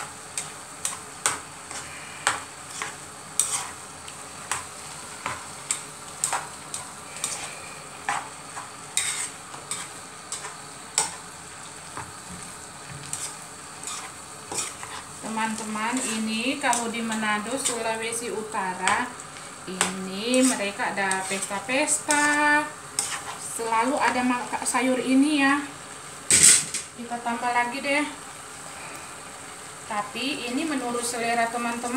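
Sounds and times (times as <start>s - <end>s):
food hissing in pot: 0.0s - 31.9s
utensil scraping a pot: 1.7s - 3.8s, 6.3s - 11.2s, 13.1s - 17.8s, 20.3s - 23.4s.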